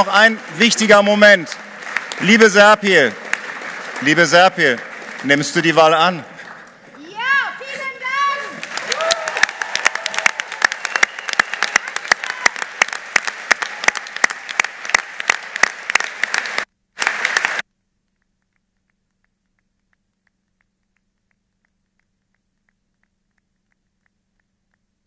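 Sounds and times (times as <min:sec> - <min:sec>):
sharp individual claps: 0:00.0 - 0:05.8, 0:08.6 - 0:17.6
audience applauding: 0:00.0 - 0:17.6.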